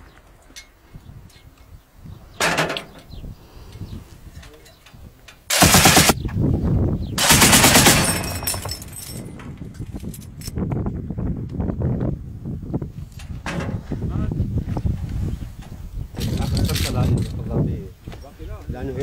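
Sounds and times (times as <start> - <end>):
machine gun firing bursts: 5.5 - 6.2, 7.2 - 8.8.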